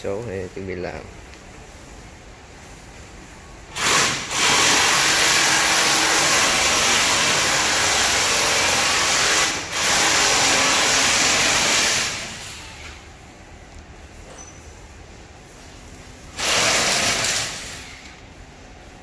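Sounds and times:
machine rushing hiss: 0:03.7 - 0:13.1, 0:15.1 - 0:18.1.

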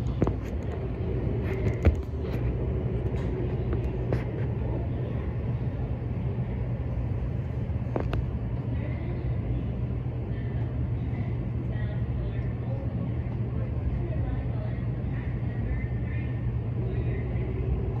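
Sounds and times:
train car low hum: 0:00.0 - 0:18.0.

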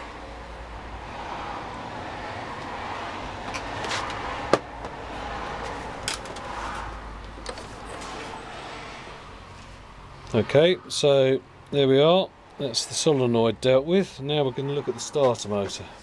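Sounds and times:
workshop background noise: 0:03.4 - 0:08.4
clicks and knocks from handling metal: 0:05.6 - 0:06.5.

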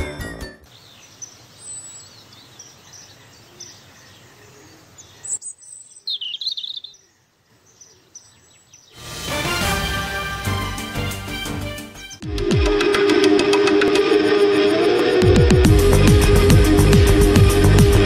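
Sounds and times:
music: 0:00.0 - 0:00.7, 0:09.0 - 0:18.0
birds chirping: 0:00.7 - 0:09.0.

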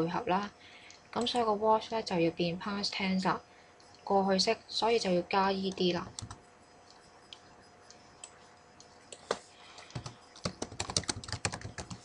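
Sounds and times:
keyboard typing: 0:01.2 - 0:01.6, 0:05.6 - 0:12.0.

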